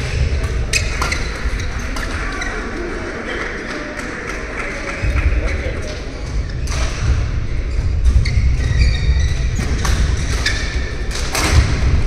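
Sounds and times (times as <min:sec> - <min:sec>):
rumble of hall: 0:00.0 - 0:12.0
shoe squeaks on court floor: 0:07.8 - 0:10.9.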